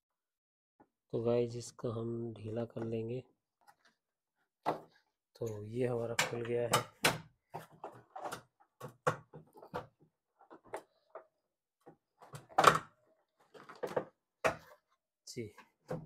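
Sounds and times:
plastic panel clicks and knocks: 6.1s - 10.8s, 12.2s - 14.7s.

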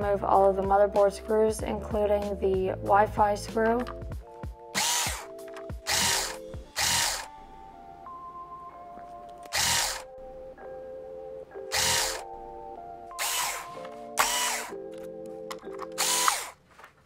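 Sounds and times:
electric screwdriver whirring: 4.8s - 7.5s, 9.5s - 10.1s, 11.7s - 12.3s, 13.1s - 14.9s, 15.8s - 16.6s.

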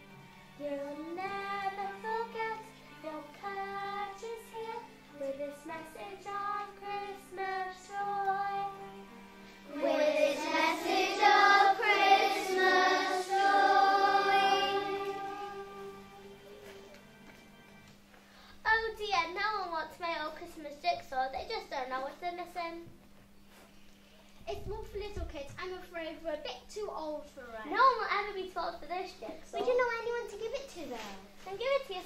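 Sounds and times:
backing music: 0.0s - 18.3s
child singing: 0.6s - 8.8s, 9.7s - 16.2s
group of children singing: 9.7s - 16.2s.

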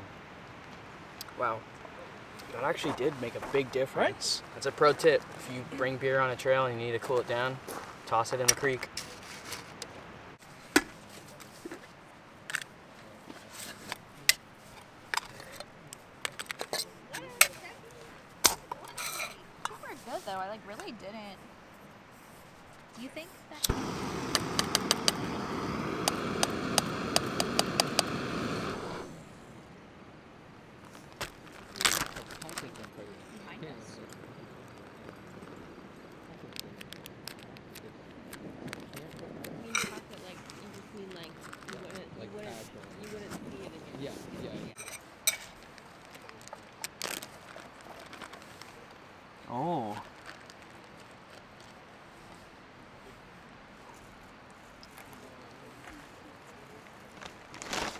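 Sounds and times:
plastic bag crinkle: 31.0s - 33.2s, 45.5s - 49.0s, 50.0s - 51.7s, 57.1s - 57.9s.

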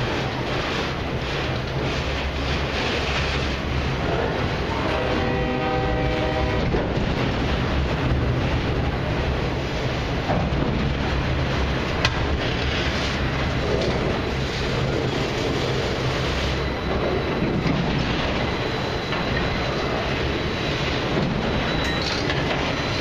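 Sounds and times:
freight train wheels rumbling on rail: 0.0s - 23.0s
train horn: 4.0s - 6.9s.

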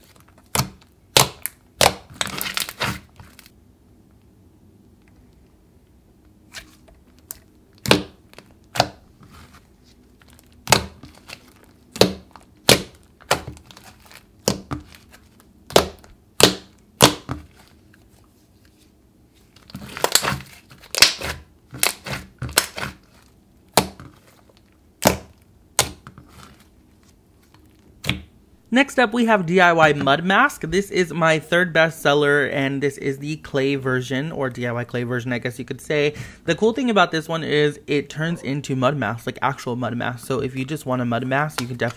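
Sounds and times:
slime popping and squelching: 0.0s - 3.5s, 7.1s - 9.0s, 10.2s - 17.8s, 19.6s - 26.1s.

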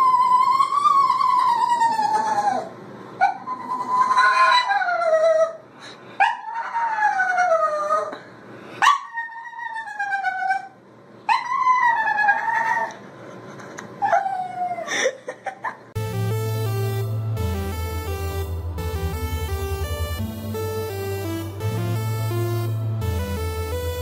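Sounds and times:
dog yipping: 0.2s - 5.6s, 8.8s - 10.7s, 11.3s - 12.9s
dog howling: 3.3s - 5.6s, 6.3s - 8.1s, 11.3s - 12.9s
electronic music: 16.0s - 24.0s.

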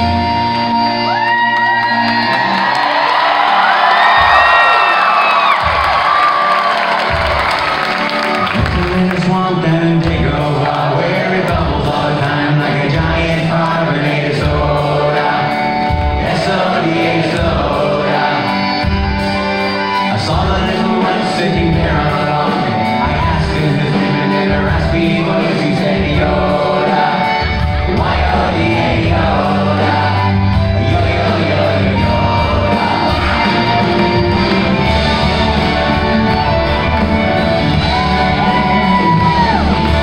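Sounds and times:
live band playing: 0.0s - 40.0s
lead singer singing: 8.4s - 40.0s
backing vocalists singing: 8.6s - 40.0s.

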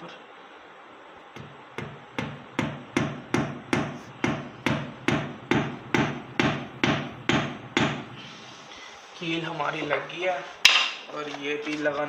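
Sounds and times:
hammer striking a nail: 1.4s - 8.2s.

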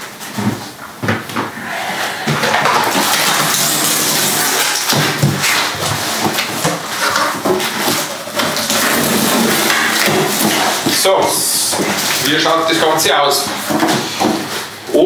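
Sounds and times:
cardboard flaps scraping: 0.0s - 14.8s
packing tape pulled off: 2.8s - 11.0s.

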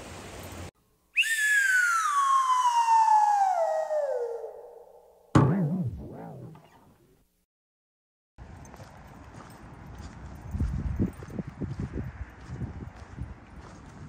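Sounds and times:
cartoon falling whistle: 1.2s - 6.6s
hit with wobbling tone: 4.1s - 7.0s.

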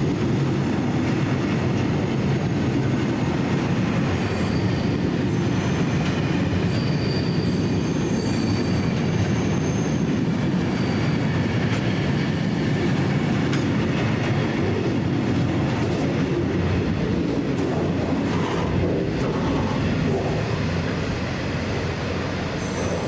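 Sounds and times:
freight train rumbling: 0.0s - 23.0s
high wheel squeal: 4.2s - 6.0s, 6.6s - 11.2s, 22.4s - 23.0s
wheels clicking over rail joints: 11.0s - 23.0s.

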